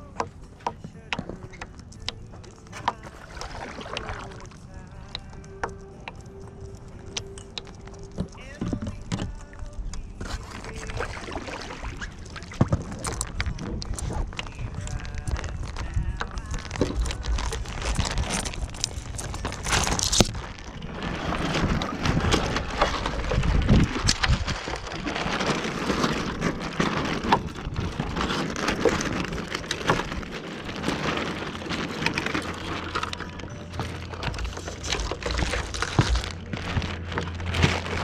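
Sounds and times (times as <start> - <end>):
sharp knocks and crackles: 0.0 - 11.1, 11.7 - 38.0
water splashing against hull: 0.0 - 38.0
rough wind noise: 8.0 - 38.0.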